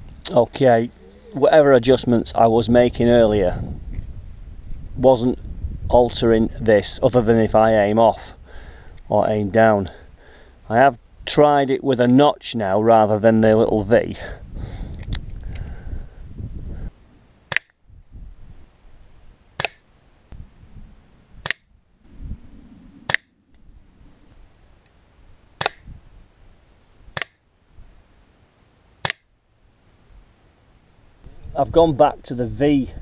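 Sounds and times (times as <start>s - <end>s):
air pistol cracks: 17.5s - 17.8s, 19.6s - 19.8s, 23.1s - 23.3s, 25.6s - 25.9s, 29.0s - 29.3s.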